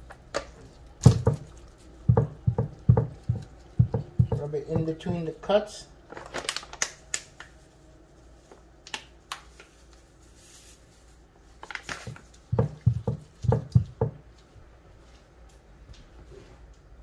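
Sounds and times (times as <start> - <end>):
seasoning shaker taps: 1.0 - 5.3, 12.0 - 14.2.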